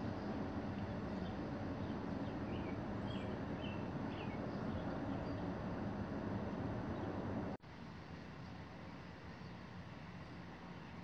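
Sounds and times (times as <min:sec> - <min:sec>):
faint bird chirps: 0:00.2 - 0:05.4.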